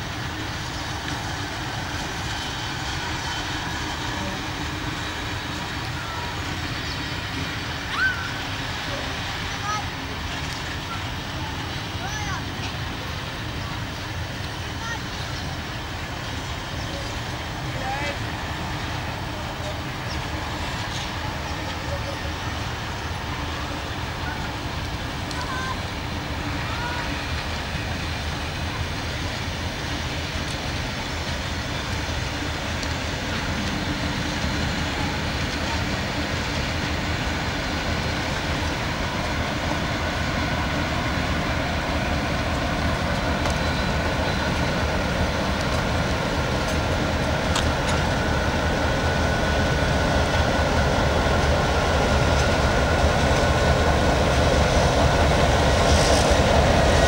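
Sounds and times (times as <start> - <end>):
diesel locomotive engines droning: 0.0 - 57.0.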